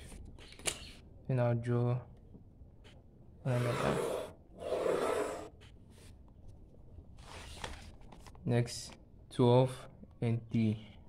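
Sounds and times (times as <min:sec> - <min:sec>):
pencil scratching on paper: 0:03.5 - 0:05.6.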